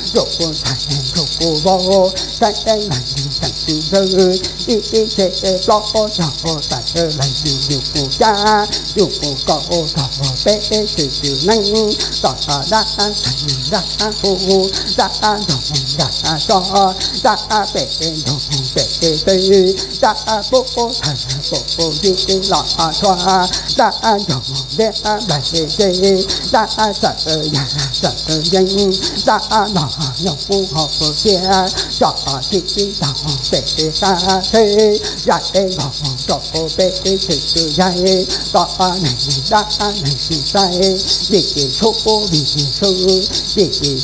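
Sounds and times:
metal rattle and bells jingling: 0.0s - 44.0s
person chanting rapidly: 0.0s - 44.0s.

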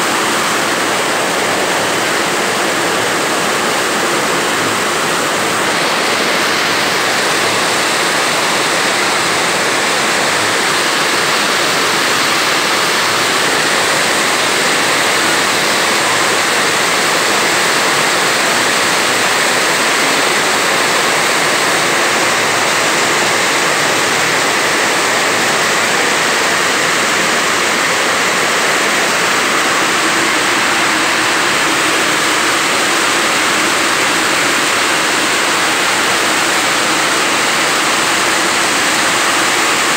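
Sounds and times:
heavy rain pouring: 0.0s - 39.9s.

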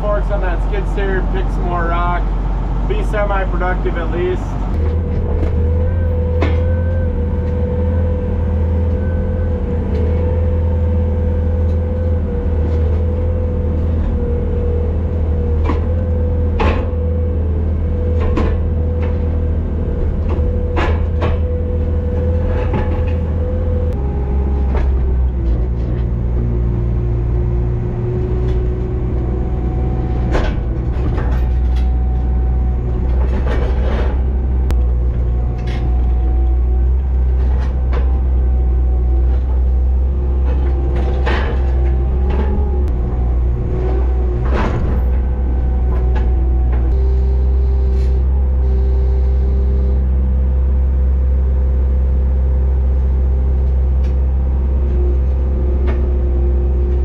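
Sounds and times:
skid steer engine running: 0.0s - 57.0s
metal clanks and knocks: 4.7s - 8.1s, 20.0s - 26.4s, 28.0s - 38.6s, 39.2s - 47.0s.

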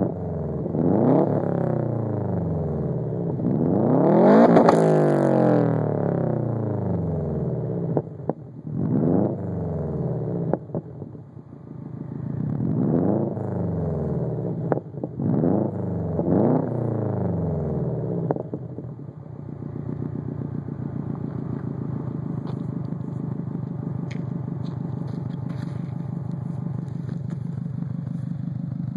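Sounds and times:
car engine revving: 0.0s - 28.9s
exhaust cracks: 3.3s - 5.4s, 12.2s - 28.9s.

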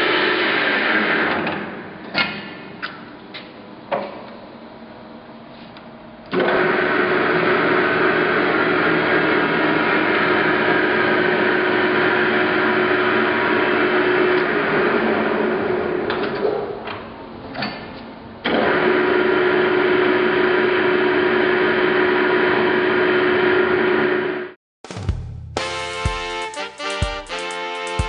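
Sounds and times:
lathe running: 6.4s - 16.1s.

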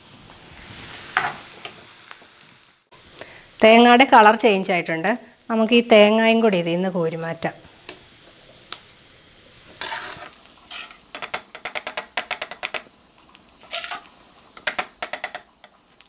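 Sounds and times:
metal skimmer scraping in hot oil: 9.7s - 12.7s, 13.6s - 14.8s.

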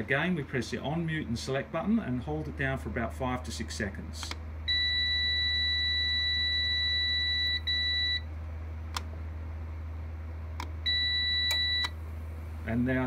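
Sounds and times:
steady low hum: 0.0s - 13.0s
long high beep: 4.7s - 8.2s, 10.9s - 12.0s
short beep: 10.9s - 12.0s.

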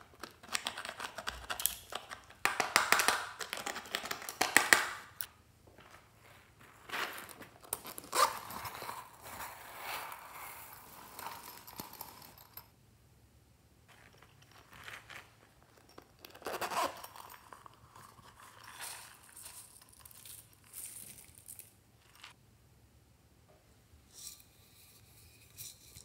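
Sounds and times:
zipper rasping open: 7.8s - 12.4s, 16.2s - 19.2s.

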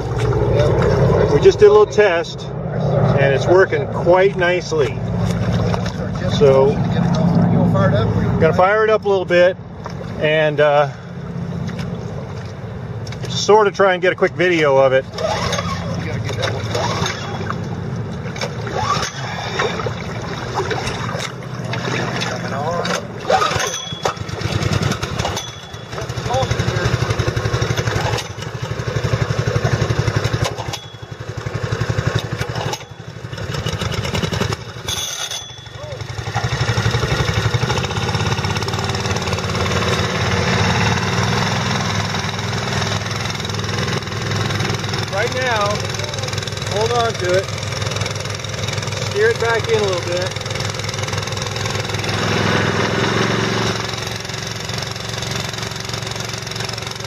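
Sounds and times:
small gasoline engine putter: 15.0s - 57.0s.

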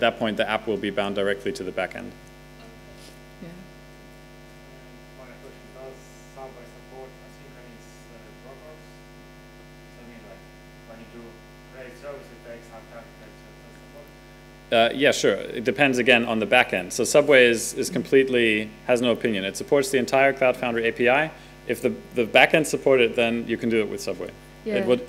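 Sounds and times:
electrical mains hum: 0.0s - 25.0s
distant person speaking: 24.7s - 25.0s.

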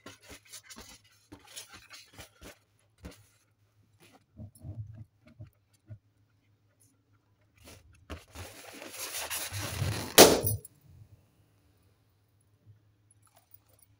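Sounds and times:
hands rubbing rubber balloon: 0.0s - 6.2s, 7.6s - 10.4s
balloon bursting pop: 10.0s - 10.6s.

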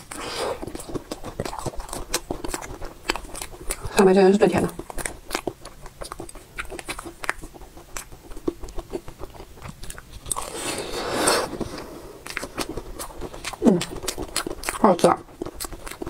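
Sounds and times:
wet mouth clicks and smacks: 4.8s - 10.3s.

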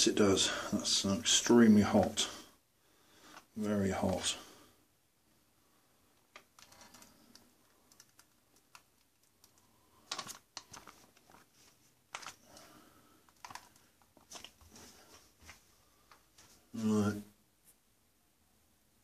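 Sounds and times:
foil pouch crinkling: 10.0s - 12.5s.

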